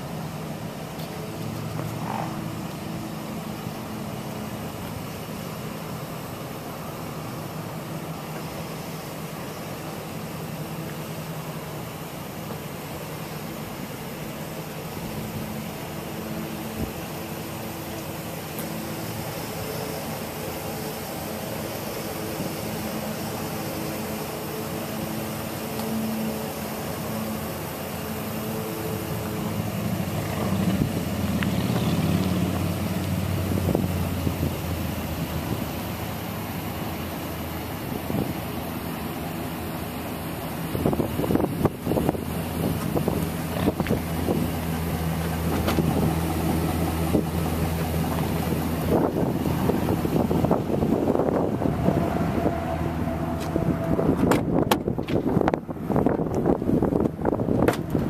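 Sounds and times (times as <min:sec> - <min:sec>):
broad hiss: 0:00.0 - 0:57.4
low mechanical hum: 0:00.0 - 0:58.0
vehicle engine running: 0:00.0 - 0:58.0
wind on microphone: 0:48.8 - 0:58.0.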